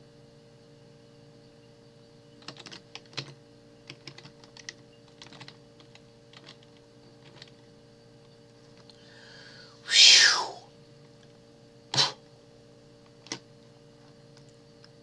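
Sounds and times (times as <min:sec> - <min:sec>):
faint steady hum: 0:00.0 - 0:15.0
keyboard typing clicks: 0:02.4 - 0:07.6, 0:13.1 - 0:13.4.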